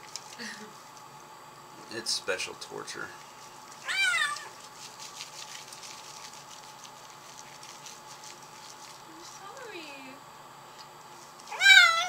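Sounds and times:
kitten meowing: 3.8 - 4.6, 11.5 - 12.0.

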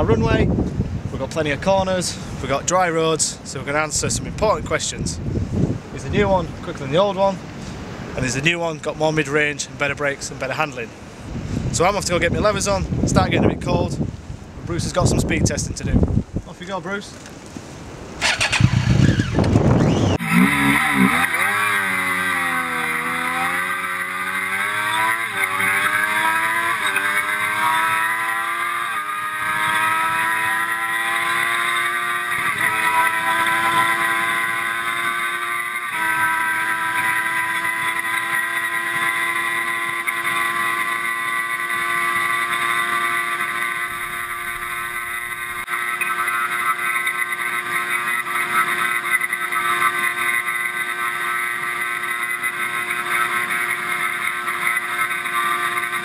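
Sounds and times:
motorcycle engine revving through gears: 18.1 - 56.0.

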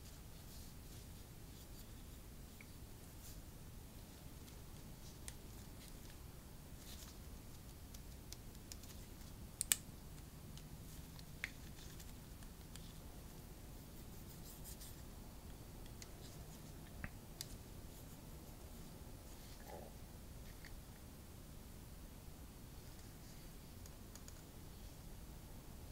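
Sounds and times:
small clicks and taps: 6.8 - 12.9, 23.8 - 24.5.

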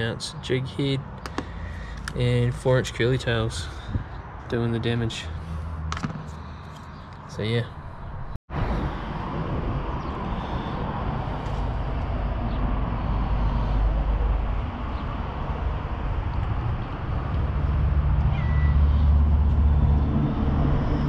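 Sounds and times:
steady low rumble: 7.8 - 21.0
cat meowing: 18.2 - 19.0.

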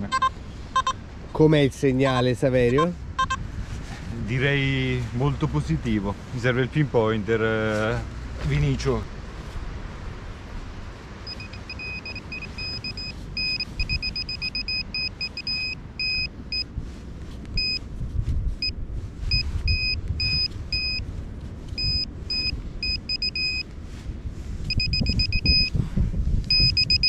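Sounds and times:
metal detector short high beeps: 0.1 - 1.0, 2.0 - 3.4, 11.3 - 16.7, 17.6 - 17.8, 19.3 - 21.0, 21.8 - 23.6, 24.7 - 25.7, 26.5 - 27.0.

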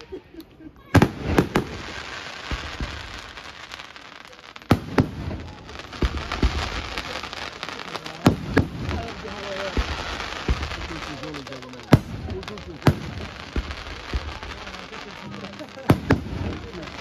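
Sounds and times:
firework shells bursting: 4.6 - 17.0.

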